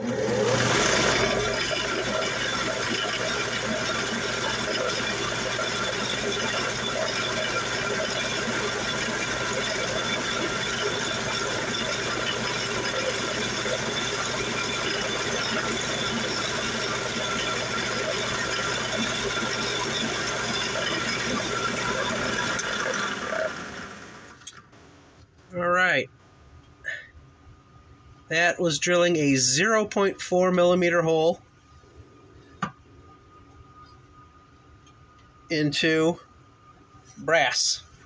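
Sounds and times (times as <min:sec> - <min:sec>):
drill press humming: 0:00.0 - 0:24.8.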